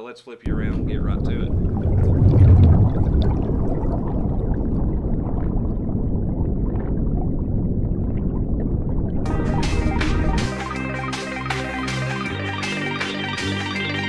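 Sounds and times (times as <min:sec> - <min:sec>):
underwater bubbling: 0:00.5 - 0:10.7
low underwater rumble: 0:00.5 - 0:11.0.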